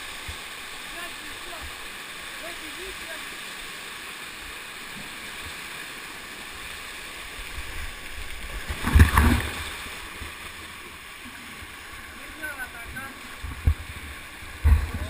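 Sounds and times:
waterfall rushing: 0:00.0 - 0:15.0
person splashing into pool: 0:08.6 - 0:09.9.

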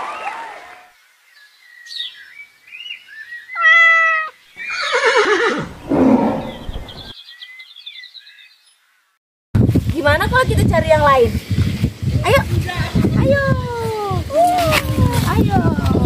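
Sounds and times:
animal calls: 0:03.3 - 0:07.1.

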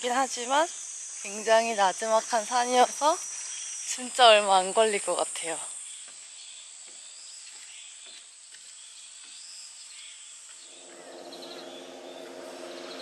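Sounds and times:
insects: 0:00.0 - 0:13.0
low multi-tone hum: 0:10.7 - 0:13.0.

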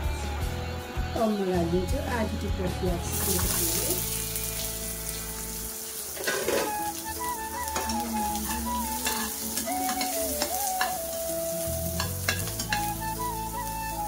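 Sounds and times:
curry sizzling in a pan: 0:03.0 - 0:14.0
soft melody: 0:03.0 - 0:14.0
spoon scraping a pan: 0:06.0 - 0:07.0, 0:07.7 - 0:11.1, 0:12.0 - 0:13.0.

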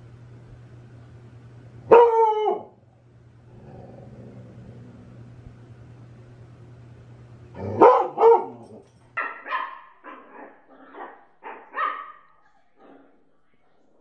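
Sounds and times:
large dog barking: 0:01.9 - 0:02.7, 0:07.6 - 0:12.3
puppy yapping: 0:09.2 - 0:12.3.

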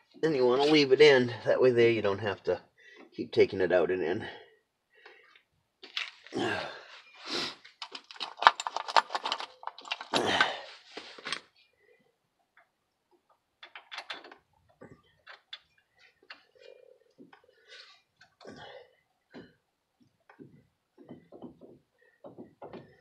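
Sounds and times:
rattling clicks: 0:07.8 - 0:10.5, 0:12.6 - 0:16.6
metal tools clinking and clattering: 0:07.8 - 0:11.5, 0:13.6 - 0:16.6.

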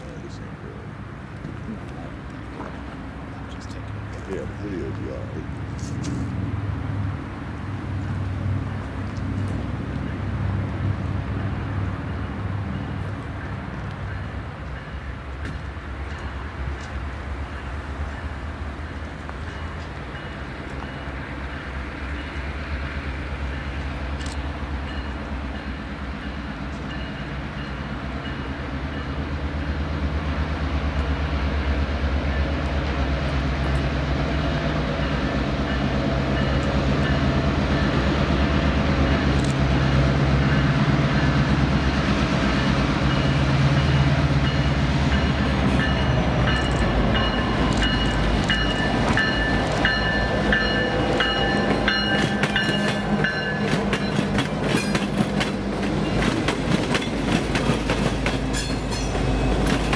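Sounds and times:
diesel locomotive engines passing: 0:00.0 - 0:59.9
train wheels clicking over rail joints: 0:43.2 - 0:59.9.

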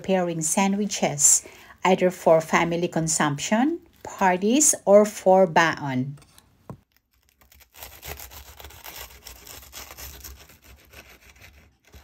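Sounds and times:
serrated knife sawing through toast: 0:07.5 - 0:12.0.

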